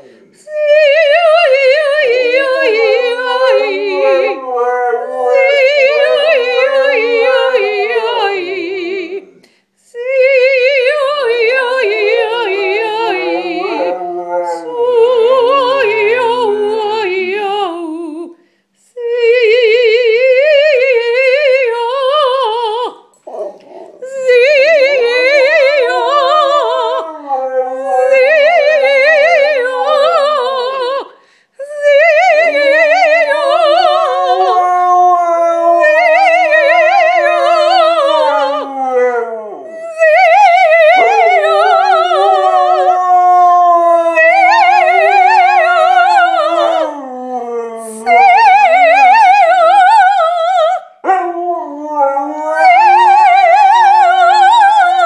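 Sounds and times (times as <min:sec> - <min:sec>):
woman singing soprano: 0:00.0 - 0:55.0
dog howling: 0:00.8 - 0:08.7, 0:11.0 - 0:17.2, 0:23.2 - 0:30.7, 0:32.0 - 0:55.0.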